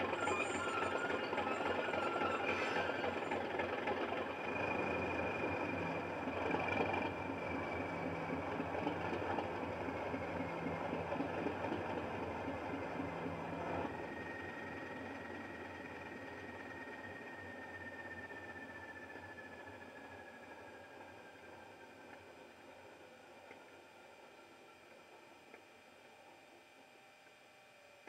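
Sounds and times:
thin high whistle: 0:00.0 - 0:03.6, 0:13.9 - 0:21.3.

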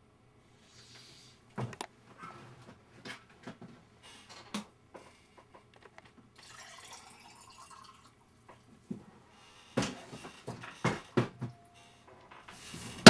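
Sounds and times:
liquid poured into a glass: 0:06.4 - 0:08.2.

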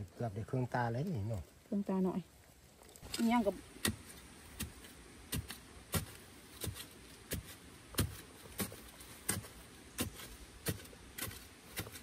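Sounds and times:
footsteps crunching through undergrowth: 0:02.5 - 0:12.0.

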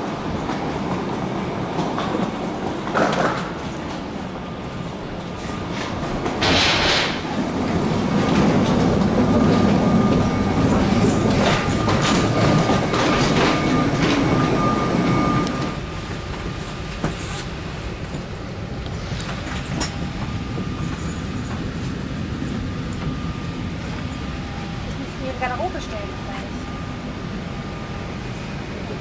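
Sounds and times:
aircraft cabin hum: 0:03.5 - 0:29.0
wheeled suitcases rolling: 0:04.8 - 0:24.3.

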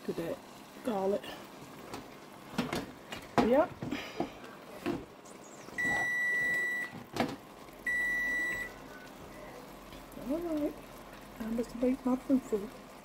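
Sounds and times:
kitchen timer beeping: 0:05.8 - 0:07.0, 0:07.8 - 0:08.8.

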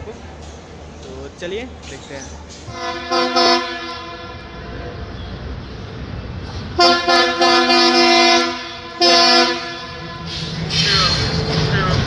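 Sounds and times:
diesel engine rumble: 0:00.0 - 0:12.0
locomotive horn blasts: 0:02.7 - 0:05.3, 0:06.8 - 0:10.6.

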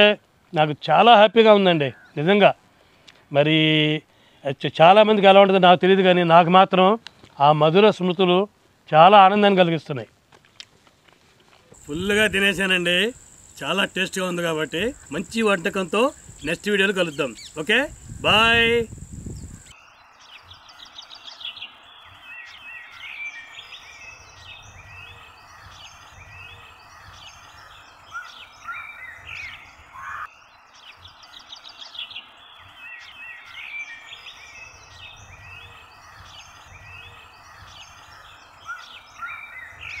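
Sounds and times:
steady background hiss: 0:00.0 - 0:40.0
birds chirping: 0:11.7 - 0:40.0.

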